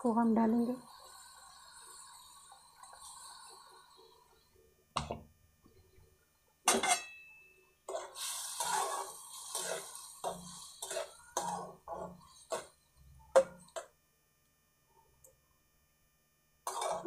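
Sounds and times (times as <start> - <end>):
utensils scraping a metal pot: 7.9 - 12.8, 16.7 - 17.0.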